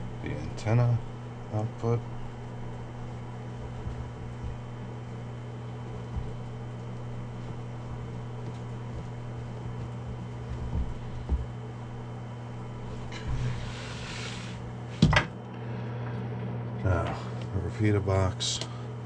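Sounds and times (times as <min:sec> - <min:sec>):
steady low hum: 0:00.0 - 0:19.0
soft knocks: 0:08.4 - 0:11.6.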